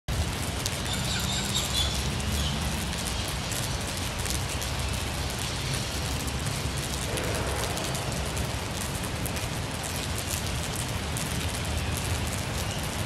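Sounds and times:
rain pattering on shade cloth: 0:00.1 - 0:13.0
low rumble: 0:06.8 - 0:10.0.

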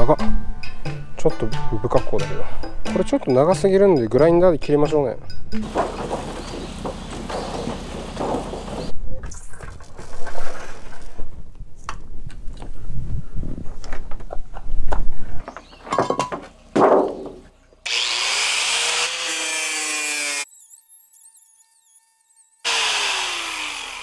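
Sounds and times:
boards and metal sheet clattering: 0:05.6 - 0:08.9, 0:15.8 - 0:17.5
angle grinder cutting metal: 0:17.9 - 0:24.0.

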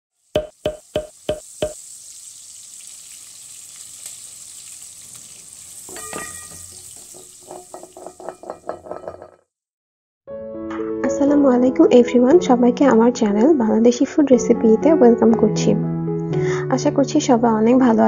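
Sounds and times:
sizzling hiss: 0:00.1 - 0:08.2
knock: 0:00.4 - 0:01.8.

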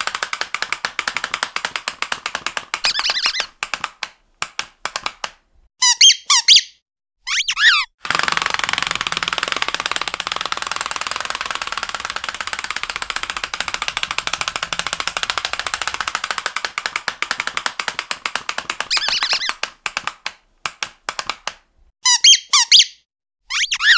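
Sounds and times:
dog toy clicking: 0:00.0 - 0:05.4, 0:08.0 - 0:21.6
short squeak: 0:05.8 - 0:07.9, 0:22.0 - 0:23.9.

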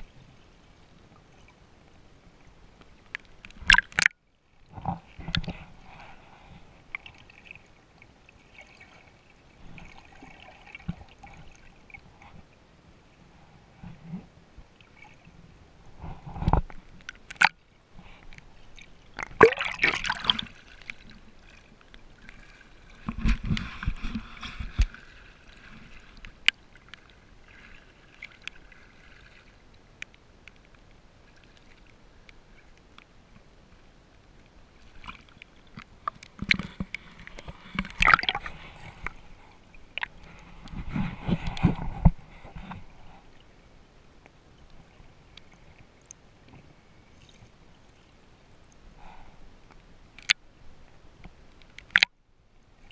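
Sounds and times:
water splashing and gurgling: 0:02.4 - 0:12.5, 0:13.8 - 0:30.0, 0:34.4 - 0:43.4, 0:51.7 - 0:52.2.

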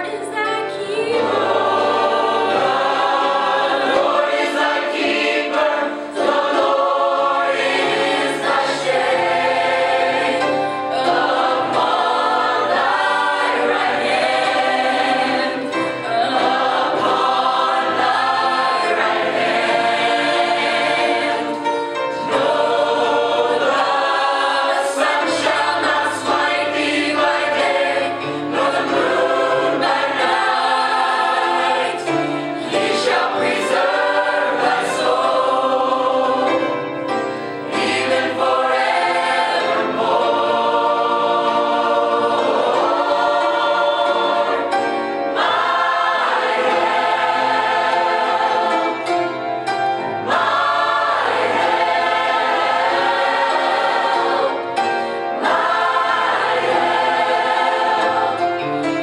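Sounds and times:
mixed choir singing gospel: 0:00.0 - 0:59.0.

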